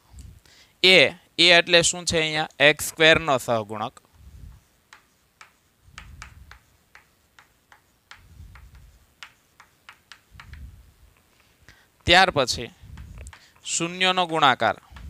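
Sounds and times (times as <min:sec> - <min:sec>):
chalk tapping on blackboard: 0:04.5 - 0:10.7, 0:12.9 - 0:15.0
soft low thumps: 0:10.3 - 0:11.0, 0:12.8 - 0:13.4.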